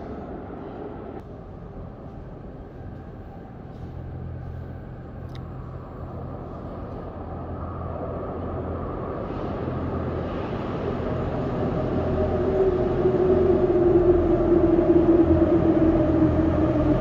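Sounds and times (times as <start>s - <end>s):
train rumble: 0.0s - 17.0s.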